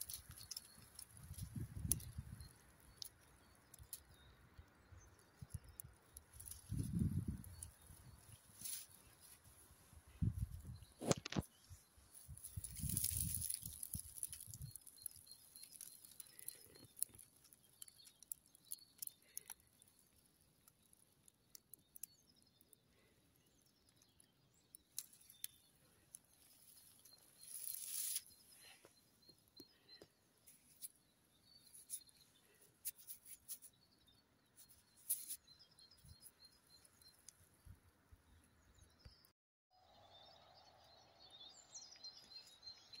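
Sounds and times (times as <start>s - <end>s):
small clicks: 0.0s - 4.3s, 5.3s - 9.4s, 12.4s - 23.0s, 23.9s - 28.8s
faint distant birds chirping: 0.0s - 43.0s.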